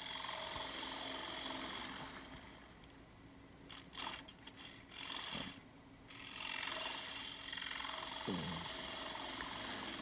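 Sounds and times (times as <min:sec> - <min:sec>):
wood lathe spinning: 0:00.0 - 0:02.4, 0:06.2 - 0:10.0.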